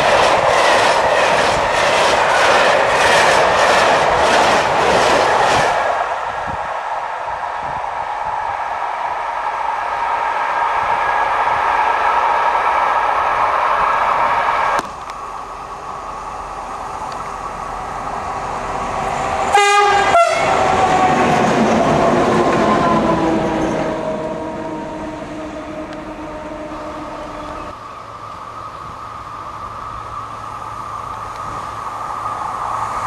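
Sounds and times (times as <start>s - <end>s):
freight train rumbling past: 0.0s - 33.0s
loud rail noise: 0.0s - 33.0s
train whine falling in pitch: 18.8s - 27.8s
train horn blast: 19.5s - 21.2s.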